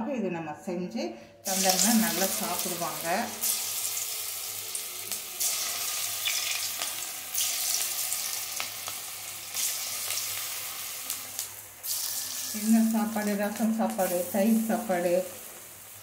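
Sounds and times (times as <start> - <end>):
bubbling sizzle of deep-frying: 1.4 - 16.0.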